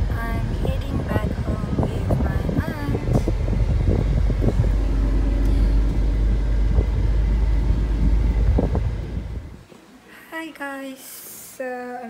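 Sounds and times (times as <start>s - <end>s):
car cabin engine and road rumble: 0.0s - 9.6s.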